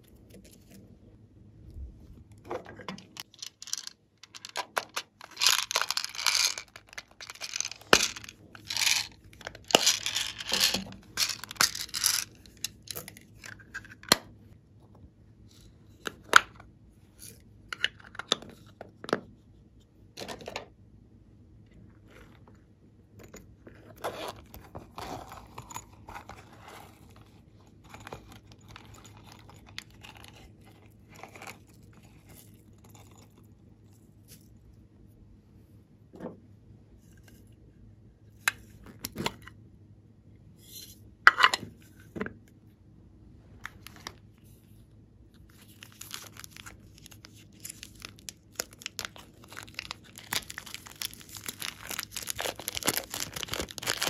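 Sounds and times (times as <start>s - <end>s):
small plastic pieces clicking: 3.0s - 13.1s
cardboard packets tearing: 45.7s - 54.0s.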